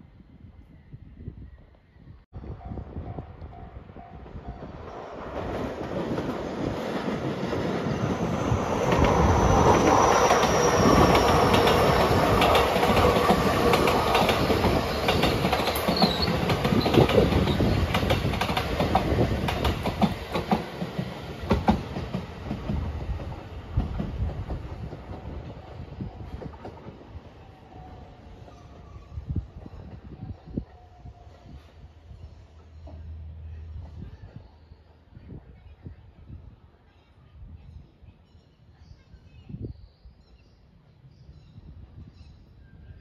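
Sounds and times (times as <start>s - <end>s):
train wheels clacking over rail joints: 10.3s - 25.3s.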